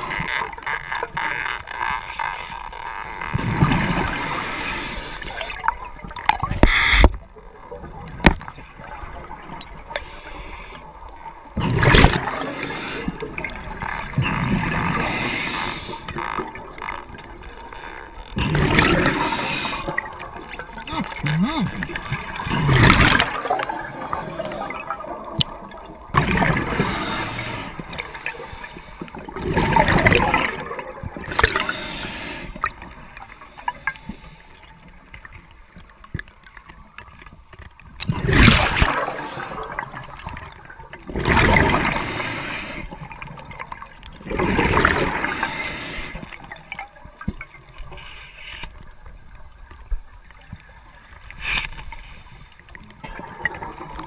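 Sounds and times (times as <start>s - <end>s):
underwater exhaled bubbles gurgling: 3.2s - 48.0s, 48.8s - 54.0s
faint hiss: 9.9s - 11.2s, 31.2s - 34.9s, 47.8s - 49.0s.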